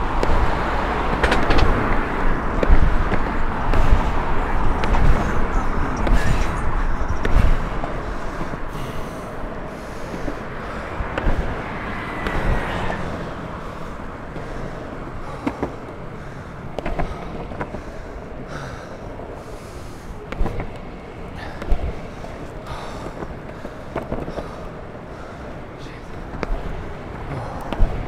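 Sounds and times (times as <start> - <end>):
longboard wheels rolling on asphalt: 0.0 - 28.0.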